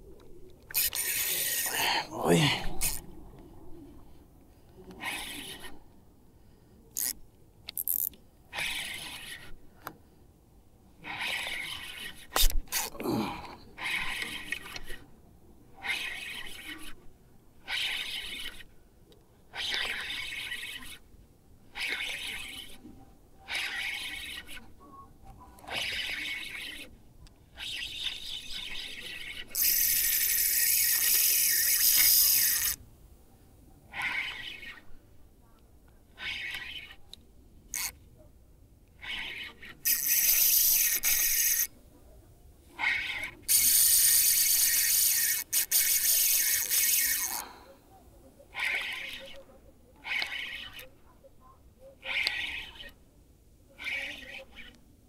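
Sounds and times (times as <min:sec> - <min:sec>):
fishing reel clicks and knocks: 0:00.7 - 0:01.8, 0:07.0 - 0:08.2, 0:29.6 - 0:32.8, 0:37.7 - 0:38.0, 0:39.8 - 0:41.7, 0:43.5 - 0:47.4
fishing reel drag ratcheting: 0:00.7 - 0:01.8, 0:02.8 - 0:03.0, 0:07.0 - 0:09.5, 0:11.1 - 0:12.9, 0:13.8 - 0:15.0, 0:15.8 - 0:16.9, 0:17.6 - 0:18.7, 0:19.5 - 0:21.0, 0:21.7 - 0:22.8, 0:23.5 - 0:24.6, 0:25.7 - 0:26.9, 0:27.5 - 0:32.8, 0:33.9 - 0:34.8, 0:36.2 - 0:37.0, 0:37.7 - 0:38.0, 0:39.0 - 0:41.7, 0:42.8 - 0:47.4, 0:48.5 - 0:49.4, 0:50.0 - 0:50.9, 0:52.0 - 0:53.0, 0:53.8 - 0:54.7.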